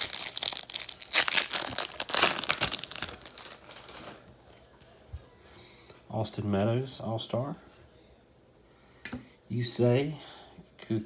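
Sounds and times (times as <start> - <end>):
foil wrapper crinkling: 0.0 - 4.3.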